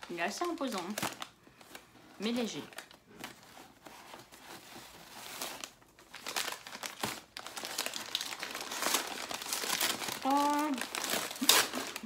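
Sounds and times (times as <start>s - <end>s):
gift wrapping crinkling: 0.0s - 12.0s.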